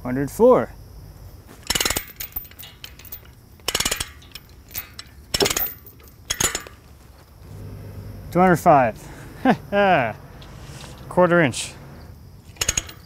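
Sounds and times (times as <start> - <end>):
chain binder clicking: 1.6 - 6.8, 12.4 - 13.0
steel chain clinking: 1.6 - 6.8, 12.4 - 13.0.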